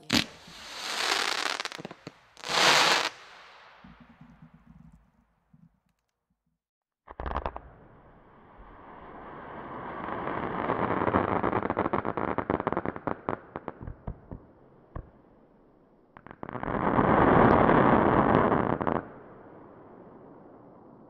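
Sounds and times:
firework stars hissing: 0:00.0 - 0:03.5
sharp firework cracks: 0:00.0 - 0:04.5
firework crackling: 0:00.0 - 0:05.0.

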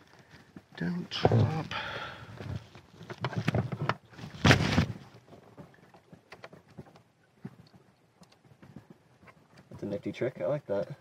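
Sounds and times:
faint clicks and taps: 0:05.3 - 0:10.0.

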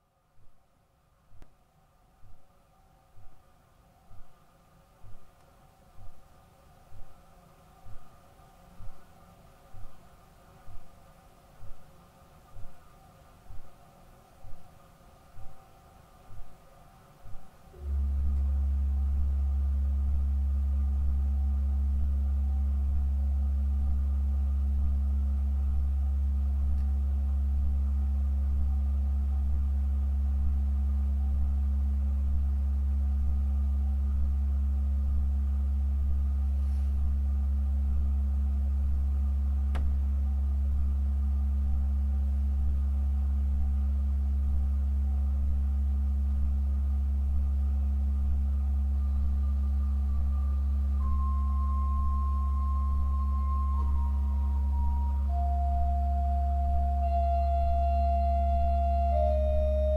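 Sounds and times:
pipe organ low note: 0:17.8 - 0:27.6, 0:48.9 - 0:59.9.

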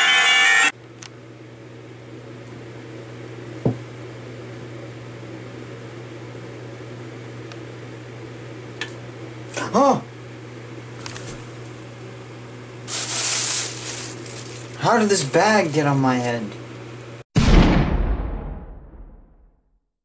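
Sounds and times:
low hum with faint hiss: 0:00.8 - 0:17.2
short knock: 0:03.6 - 0:03.8.

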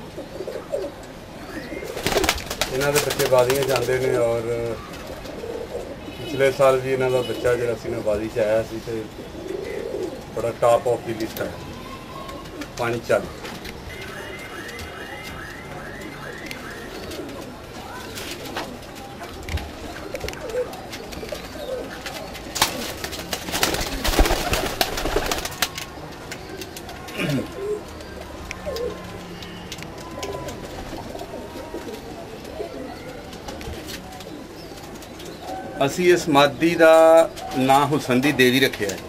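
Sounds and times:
pigeons cooing: 0:00.0 - 0:15.3, 0:16.0 - 0:39.0
wings flapping: 0:01.8 - 0:04.1, 0:19.5 - 0:26.9.

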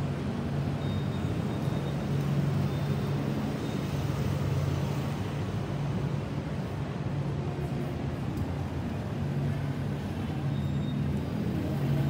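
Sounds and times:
low hum of road traffic: 0:00.0 - 0:12.0.

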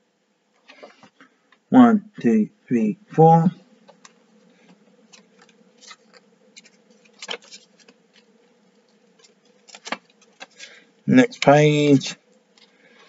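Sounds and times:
faint steady hum: 0:00.0 - 0:13.0
paper pages rustling: 0:03.8 - 0:11.6.

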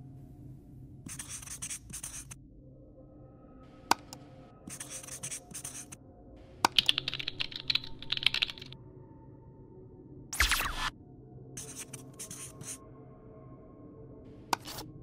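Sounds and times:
marker scratching on surface: 0:01.1 - 0:02.4, 0:04.7 - 0:06.0, 0:11.6 - 0:12.8, 0:14.6 - 0:14.9
keyboard typing clicks: 0:06.7 - 0:08.8.

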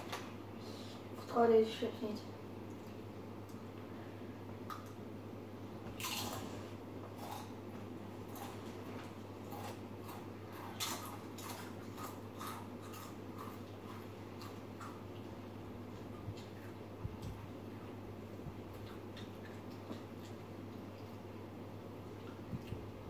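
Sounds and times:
person chewing crunchy chips: 0:06.0 - 0:16.8.

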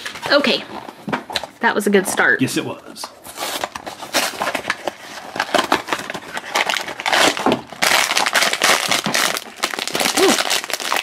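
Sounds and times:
foil bag crinkling: 0:03.4 - 0:11.0.

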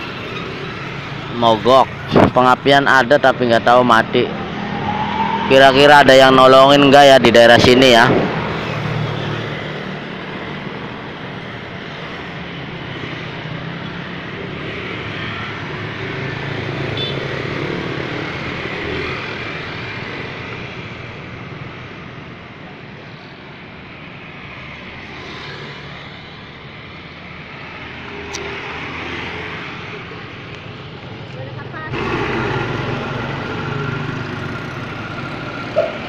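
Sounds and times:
motorbikes passing: 0:00.0 - 0:36.0.

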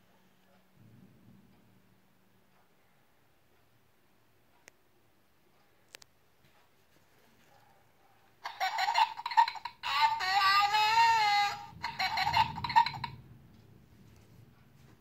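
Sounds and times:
toy sound chip voice clip: 0:09.8 - 0:13.1.

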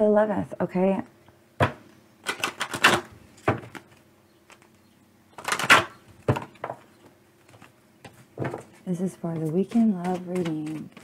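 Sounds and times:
cards being shuffled: 0:08.4 - 0:11.0.

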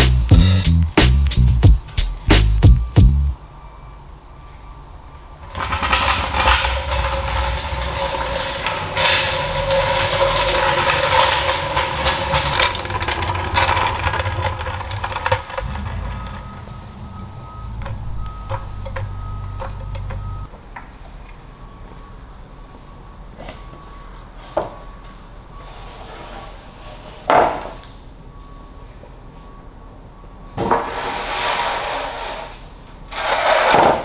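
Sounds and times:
floor jack casters grinding: 0:05.4 - 0:20.5, 0:30.6 - 0:34.0.

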